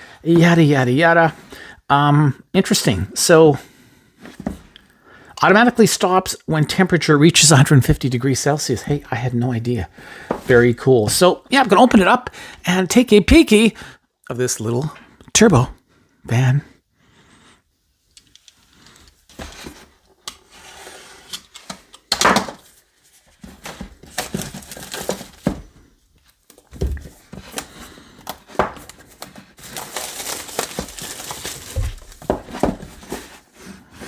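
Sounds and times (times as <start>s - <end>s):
packaging rustling and tearing: 18.9s - 25.7s, 26.3s - 33.7s
box knocks and thumps: 31.6s - 33.3s.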